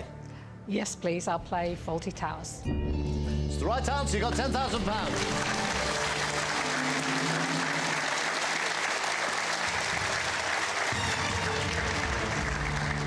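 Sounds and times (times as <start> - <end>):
game show music: 2.6 - 13.0
studio audience applauding: 4.1 - 13.0.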